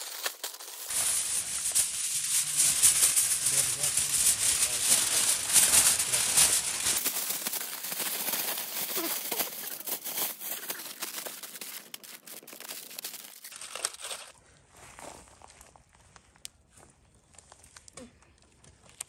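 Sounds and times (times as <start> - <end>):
aluminium foil crinkling: 0.0 - 14.4.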